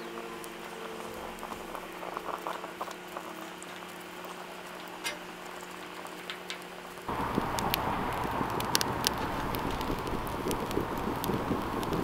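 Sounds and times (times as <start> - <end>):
twigs clicking and crackling: 0.0 - 12.0
sandwich sizzling in skillet: 7.0 - 12.0.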